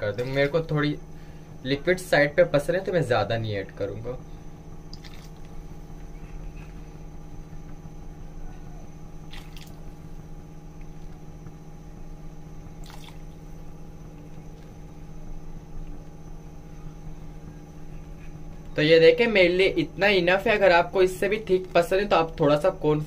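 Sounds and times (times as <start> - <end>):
steady hum: 0.0 - 23.0
soft wet liquid sounds: 4.9 - 6.8, 9.3 - 10.0, 12.8 - 13.5.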